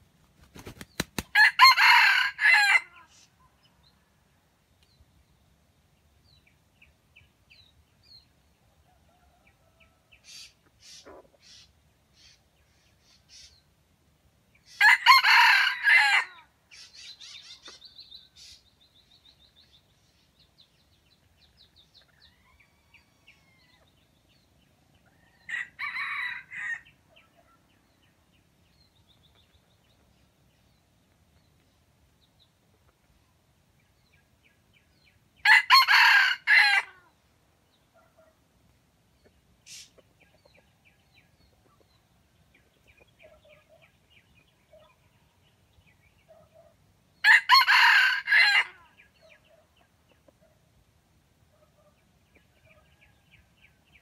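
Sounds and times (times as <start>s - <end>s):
small birds chirping: 0.0s - 1.3s, 3.0s - 14.8s, 16.6s - 25.6s, 26.6s - 35.4s, 37.1s - 47.2s, 48.8s - 54.0s
rooster crowing: 1.3s - 3.1s, 14.8s - 16.4s, 25.4s - 26.8s, 35.5s - 37.0s, 47.2s - 48.8s.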